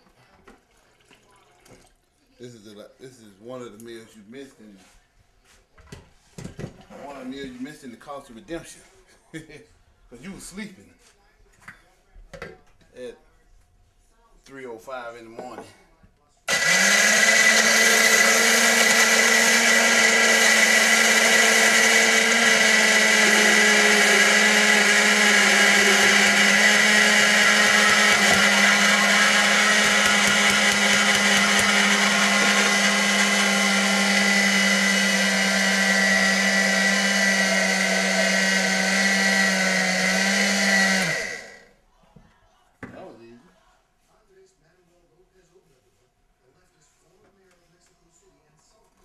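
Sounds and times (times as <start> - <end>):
electric blender running: 16.5 - 41.7.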